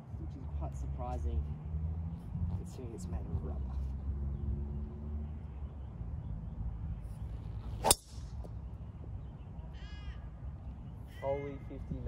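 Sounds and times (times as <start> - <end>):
golf club hitting ball: 7.8 - 8.4.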